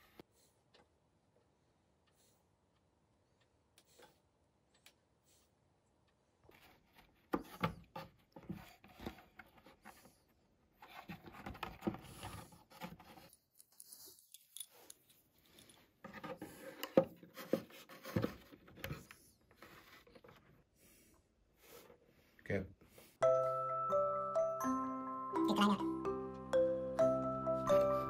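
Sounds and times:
clicks taps and scrapes of parts: 10.8s - 20.5s.

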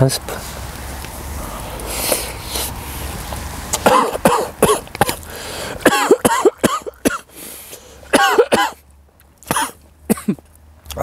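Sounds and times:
man coughing and spluttering: 3.8s - 5.2s, 5.8s - 7.3s, 8.1s - 8.8s, 9.4s - 10.4s.

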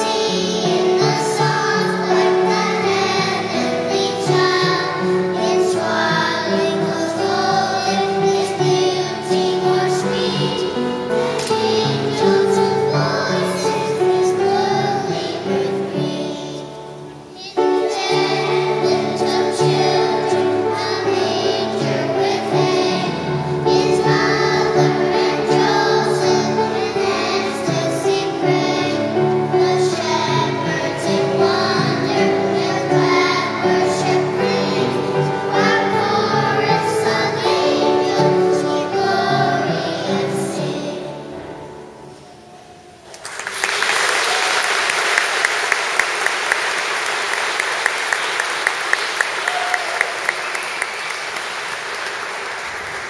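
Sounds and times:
children's choir singing: 0.0s - 53.0s
audience applause: 43.1s - 53.0s.

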